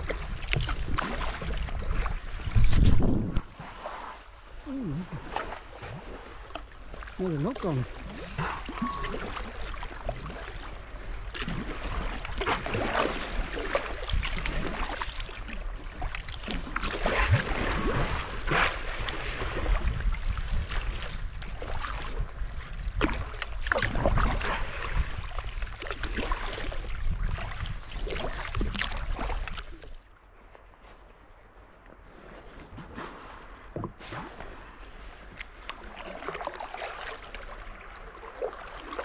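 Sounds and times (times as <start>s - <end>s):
water lapping against hull: 0.0s - 39.0s
dolphins blowing: 8.0s - 9.8s.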